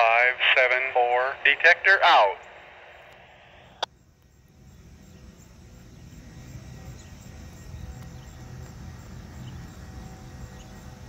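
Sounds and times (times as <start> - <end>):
vehicle rumble: 5.5 - 11.0.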